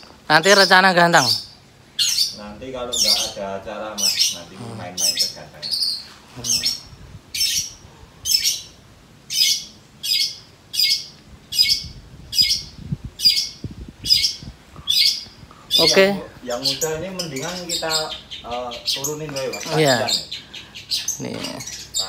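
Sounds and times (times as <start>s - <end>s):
bird calling: 0.0s - 22.0s.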